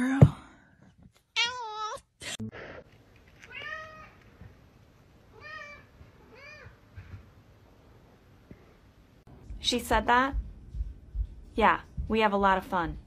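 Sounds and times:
cat meowing: 0:01.4 - 0:02.1, 0:03.4 - 0:04.2.

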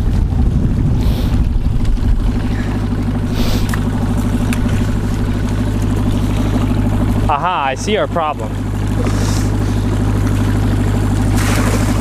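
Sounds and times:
outboard motor pulsing drone: 0:00.0 - 0:12.0.

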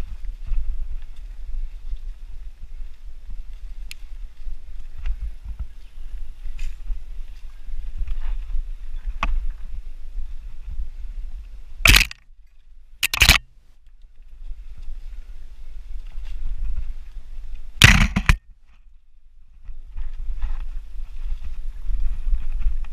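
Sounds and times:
wind rumble on microphone: 0:00.0 - 0:11.9, 0:14.0 - 0:22.9
bike riding over dirt trail: 0:16.6 - 0:18.4
bike clattering over bumps: 0:17.8 - 0:18.4.

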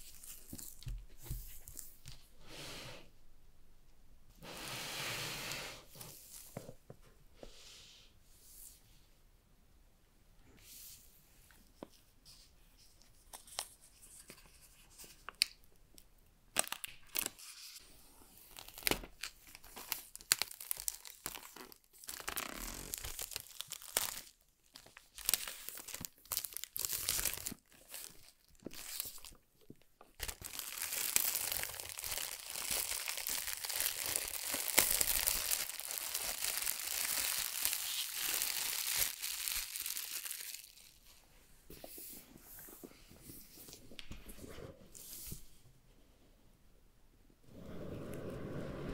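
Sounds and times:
plastic wrap crinkling and tearing: 0:16.5 - 0:17.8, 0:18.4 - 0:29.4, 0:30.0 - 0:41.1.

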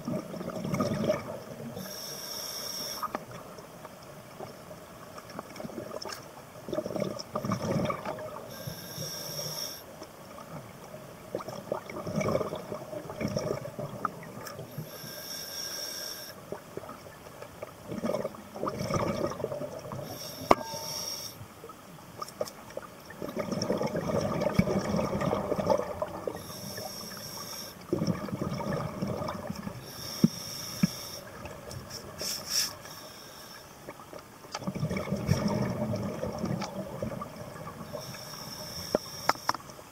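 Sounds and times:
rush of exhaled bubbles: 0:00.0 - 0:01.8, 0:06.7 - 0:08.5, 0:11.4 - 0:14.6, 0:17.9 - 0:20.9, 0:23.2 - 0:26.5, 0:27.9 - 0:29.8, 0:34.6 - 0:37.9
regulator inhalation hiss: 0:01.8 - 0:03.2, 0:08.5 - 0:09.9, 0:14.7 - 0:16.4, 0:20.0 - 0:21.4, 0:26.4 - 0:27.8, 0:29.8 - 0:31.3, 0:32.2 - 0:33.7, 0:37.9 - 0:39.5.

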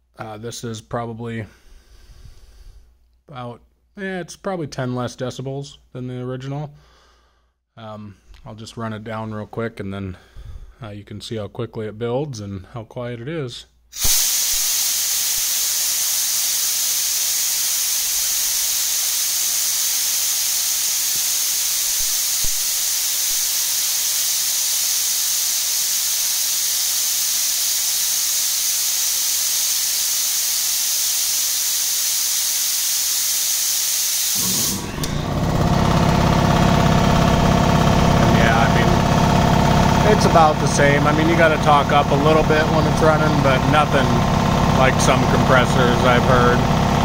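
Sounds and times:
air compressor pump running: 0:14.0 - 0:47.0
compressed air hissing: 0:14.0 - 0:47.0.

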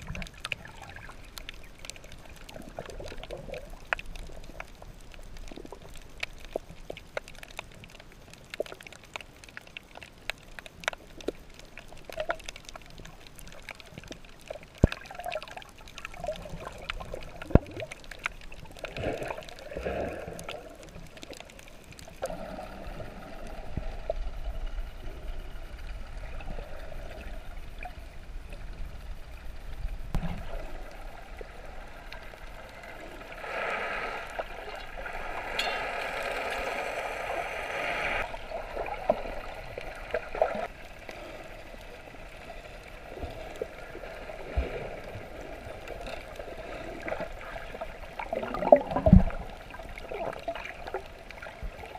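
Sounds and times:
bubbling: 0:00.0 - 0:07.7, 0:08.4 - 0:28.6, 0:30.1 - 0:42.2, 0:43.1 - 0:51.9
water gurgling: 0:00.0 - 0:51.9
low underwater rumble: 0:13.9 - 0:51.9.

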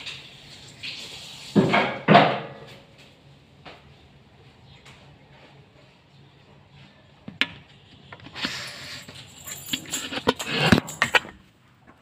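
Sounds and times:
metallic jingle: 0:09.0 - 0:11.3.

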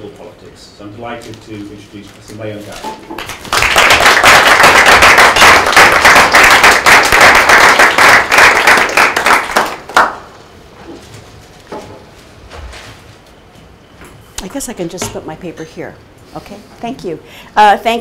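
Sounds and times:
audience applauding: 0:03.2 - 0:10.3.

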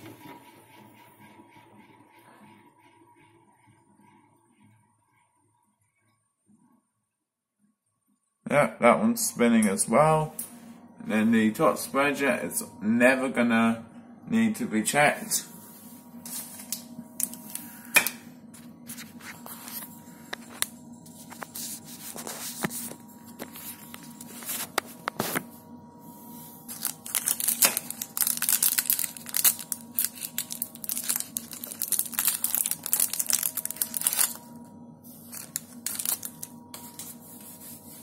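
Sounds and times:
rustling and crinkling: 0:18.7 - 0:25.6, 0:26.3 - 0:34.5, 0:35.2 - 0:37.8.

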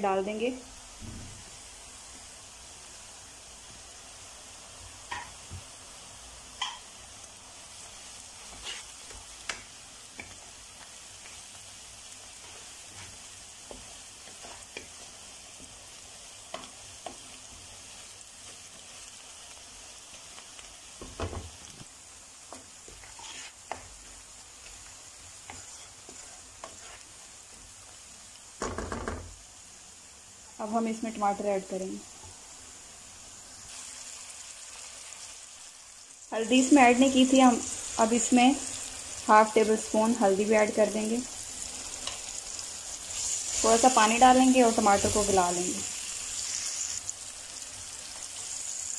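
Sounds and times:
food sizzling in oil: 0:00.0 - 0:48.9
spoon tapping pan: 0:05.1 - 0:05.4, 0:06.6 - 0:06.9.

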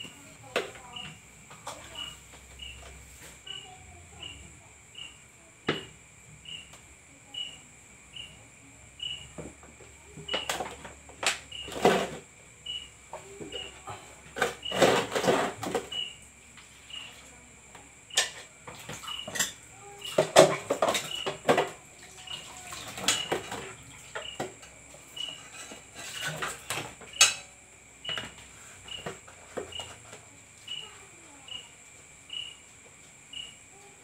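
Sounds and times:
crickets chirping: 0:00.0 - 0:34.0
dishes knocking and clattering: 0:05.7 - 0:06.0, 0:13.4 - 0:16.0, 0:18.1 - 0:30.1.

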